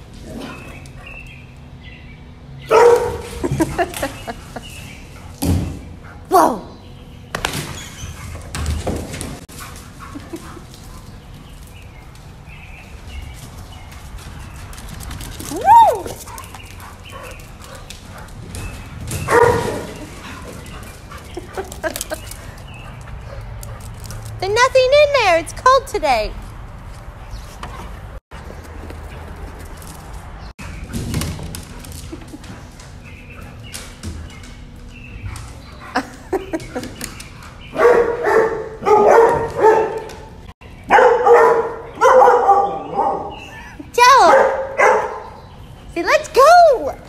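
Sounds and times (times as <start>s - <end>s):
dog barking: 2.6s - 3.8s, 19.2s - 20.0s, 37.7s - 40.3s, 40.9s - 43.5s, 44.2s - 45.4s.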